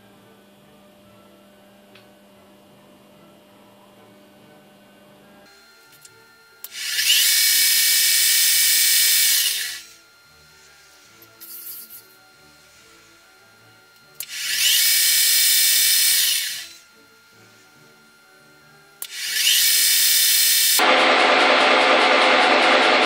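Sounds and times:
faint background music: 0.0 - 20.8
milling machine spindle whine: 5.5 - 23.0.

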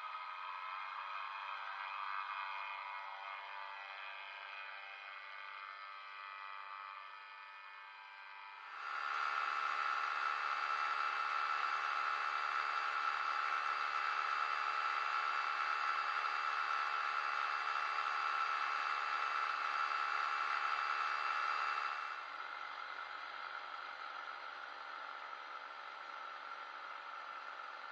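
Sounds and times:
aircraft propeller drone: 8.7 - 15.5.

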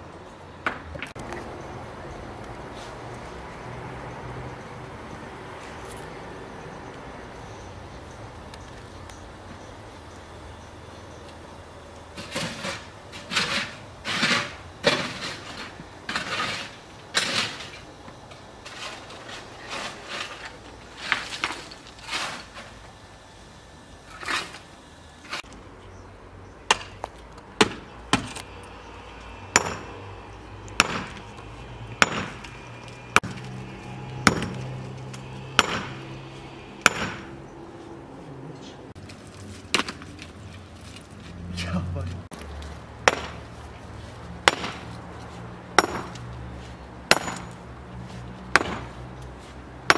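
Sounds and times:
sharp chops on wood: 30.8 - 31.2, 32.0 - 32.4, 35.6 - 36.0, 36.8 - 37.3, 43.0 - 43.4, 44.4 - 44.9, 48.5 - 48.9.

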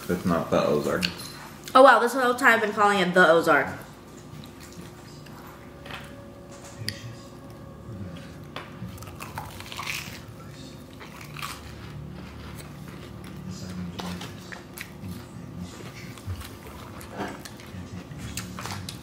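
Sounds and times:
biting and chewing: 4.2 - 19.0.

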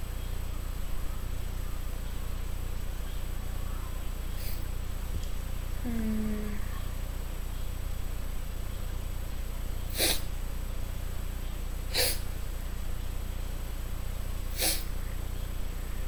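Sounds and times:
low electrical hum and hiss: 0.0 - 16.0
breaths through the nose: 4.4 - 4.7, 9.9 - 10.3, 11.9 - 12.3, 14.5 - 14.9.

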